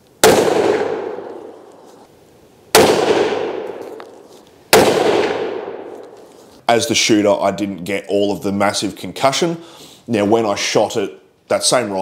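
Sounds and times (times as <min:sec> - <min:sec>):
rifle shots with echo: 0:00.2 - 0:01.7, 0:02.7 - 0:04.0, 0:04.7 - 0:06.1.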